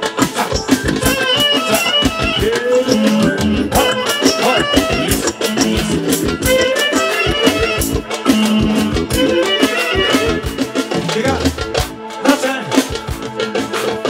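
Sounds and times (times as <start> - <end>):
band accompaniment: 0.0 - 14.0
driving drum beat: 0.0 - 14.0
clarinet melody: 0.5 - 11.2.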